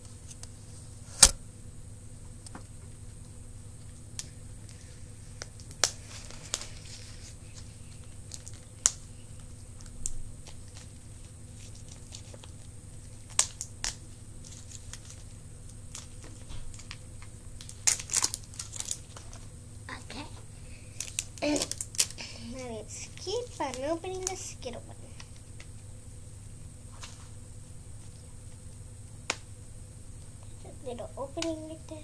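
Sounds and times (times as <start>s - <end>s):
candy wrapper crinkling: 5.3s - 19.6s, 20.7s - 25.8s.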